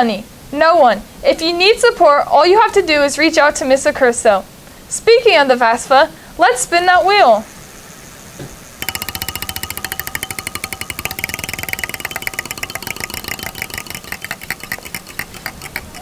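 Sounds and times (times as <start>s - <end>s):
spinner wheel ticking clicks: 8.8s - 16.0s.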